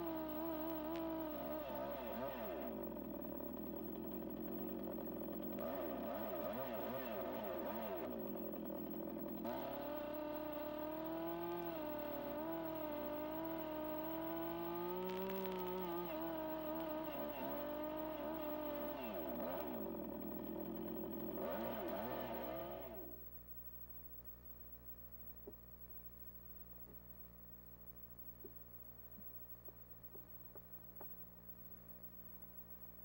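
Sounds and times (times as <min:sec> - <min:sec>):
chainsaw cutting wood: 0:00.0 - 0:23.2.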